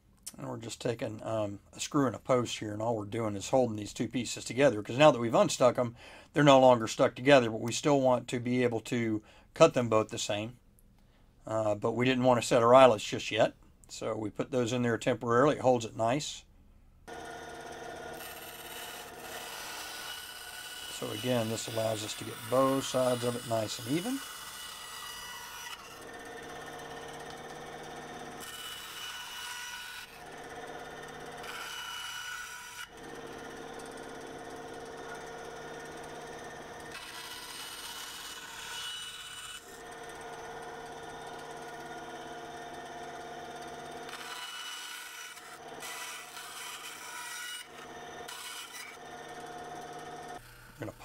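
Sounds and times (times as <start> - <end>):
band saw running: 17.1 - 51.0
saw blade rasping through plastic: 18.0 - 34.0, 42.4 - 50.9.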